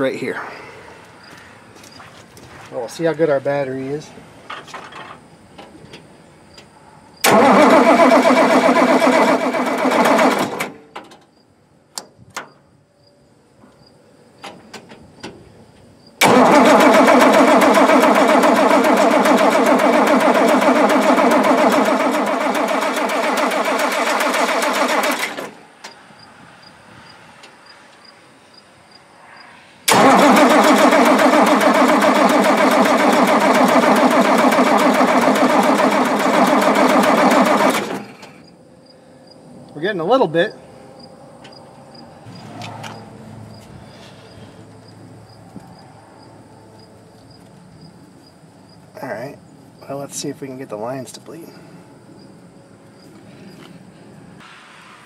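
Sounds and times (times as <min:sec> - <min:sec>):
diesel engine cranking on starter: 0:07.2 - 0:10.9, 0:16.2 - 0:25.9, 0:29.9 - 0:38.5.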